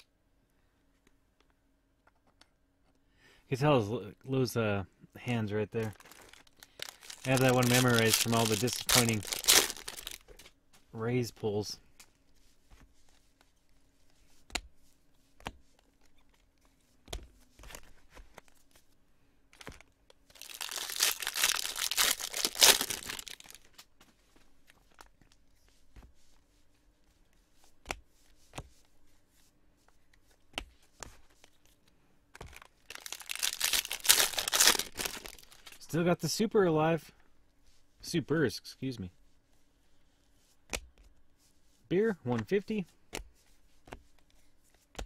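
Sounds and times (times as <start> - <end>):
foil wrapper tearing: 5.8 - 10.2, 20.3 - 23.7, 32.6 - 35.8
wrapper crinkling: 5.8 - 10.4, 19.5 - 23.8, 32.4 - 35.8.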